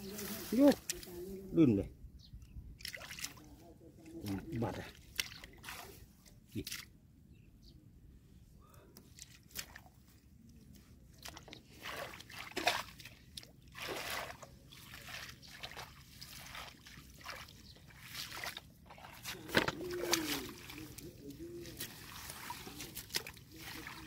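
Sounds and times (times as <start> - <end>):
water sloshing and splashing: 2.7 - 7.0, 9.1 - 24.0.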